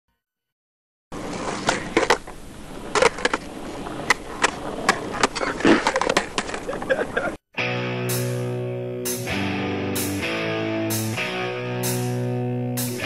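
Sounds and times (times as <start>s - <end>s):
skateboard wheels rumbling: 1.2s - 7.3s.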